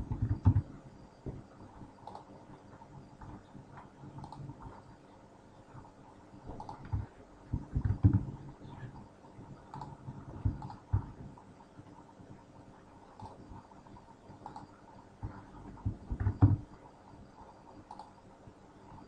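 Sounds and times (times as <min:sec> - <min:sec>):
computer mouse clicks: 0:02.0 - 0:02.3, 0:03.2 - 0:04.8, 0:06.5 - 0:08.3, 0:09.6 - 0:11.1, 0:13.1 - 0:13.4, 0:14.4 - 0:16.6, 0:17.8 - 0:18.2.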